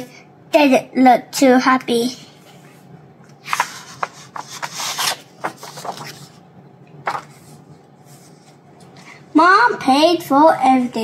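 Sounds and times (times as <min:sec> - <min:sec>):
paper page rustling: 0:03.4 - 0:06.4, 0:07.0 - 0:08.6
paper scrapes: 0:03.4 - 0:06.4.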